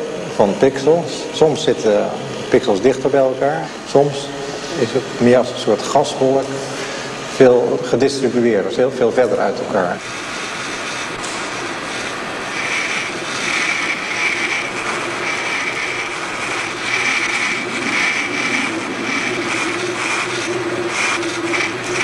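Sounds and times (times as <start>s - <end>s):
steady rushing drone: 0.0s - 22.0s
low hum: 9.3s - 22.0s.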